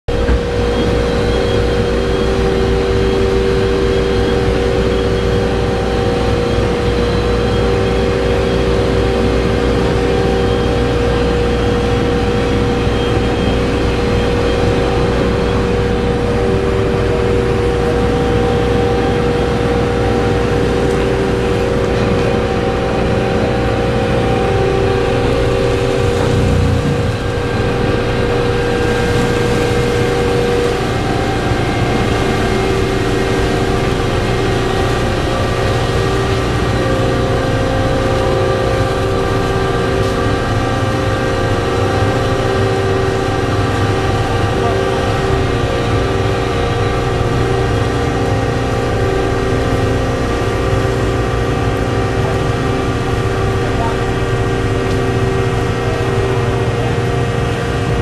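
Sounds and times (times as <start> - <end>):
constant machinery hum: 0.1 - 58.0
ship engines droning: 0.1 - 58.0.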